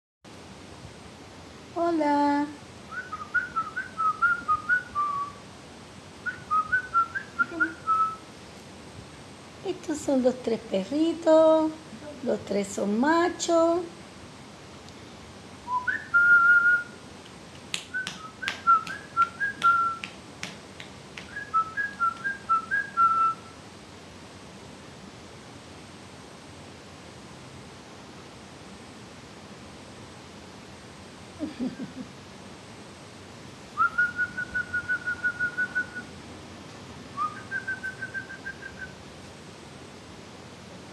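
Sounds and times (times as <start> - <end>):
person whistling: 17.9 - 20.1, 21.3 - 23.4, 33.8 - 36.1.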